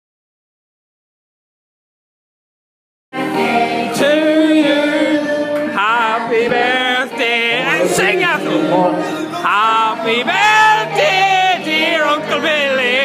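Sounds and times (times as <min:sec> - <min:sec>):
singing with music: 0:03.2 - 0:13.0.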